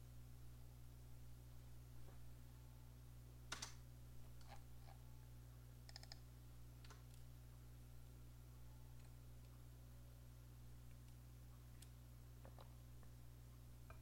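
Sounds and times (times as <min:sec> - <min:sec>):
low steady hum: 0:00.0 - 0:14.0
keyboard and mouse clicks: 0:03.5 - 0:03.8, 0:05.9 - 0:06.2.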